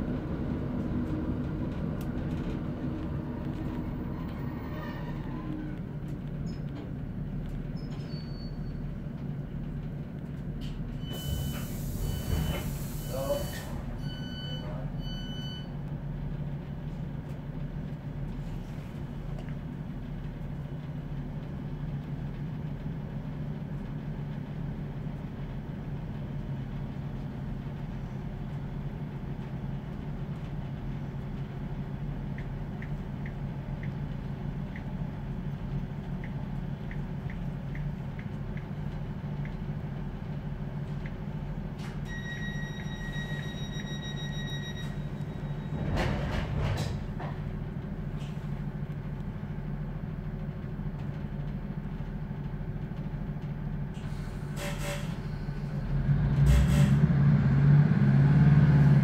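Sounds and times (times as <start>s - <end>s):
diesel train engine idling: 8.8s - 45.8s.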